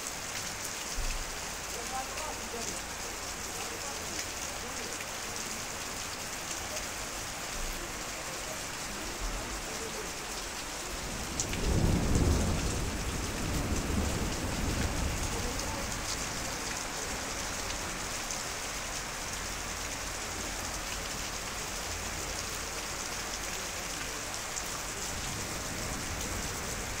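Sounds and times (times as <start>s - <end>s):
heavy rain on paving stones: 0.0s - 27.0s
thunder rumbling: 11.0s - 16.6s.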